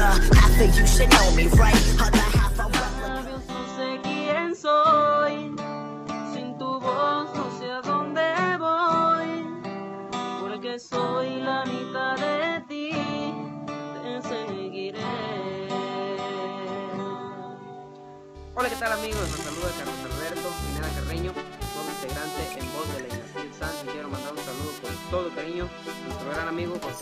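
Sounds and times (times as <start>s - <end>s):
man singing: 0.0s - 4.4s, 14.0s - 17.0s, 18.6s - 27.0s
acoustic guitar strumming: 0.0s - 27.0s.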